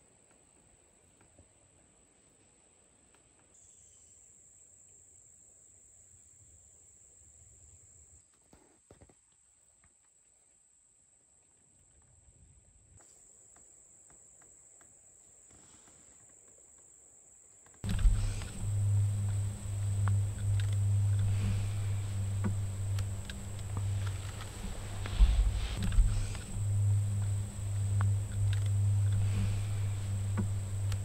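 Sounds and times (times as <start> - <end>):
insects droning: 0.0 - 12.0, 13.0 - 31.0
soft clicks: 17.8 - 31.0.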